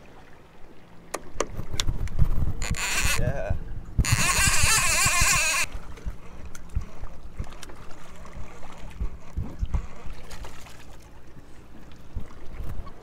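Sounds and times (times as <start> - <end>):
water lapping against hull: 0.0 - 13.0
fishing reel cranking: 2.6 - 3.4, 4.0 - 5.7.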